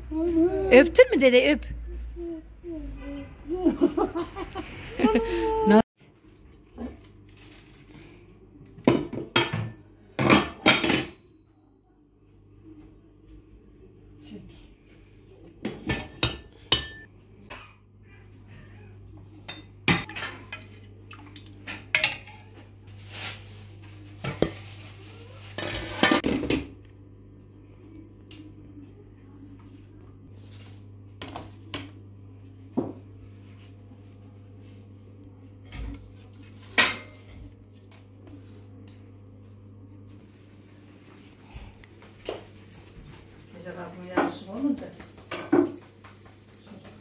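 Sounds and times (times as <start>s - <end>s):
pans and utensils clinking: 21.6s - 22.6s, 25.4s - 26.7s, 36.6s - 37.3s.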